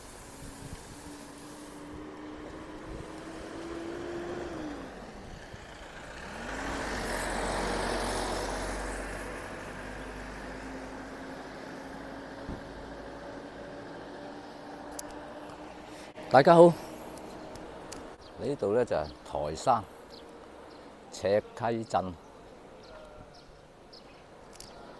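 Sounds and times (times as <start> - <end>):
van passing close: 0.0 - 20.8
vehicles driving past: 0.0 - 24.9
engine hum dropping in pitch: 0.8 - 18.2.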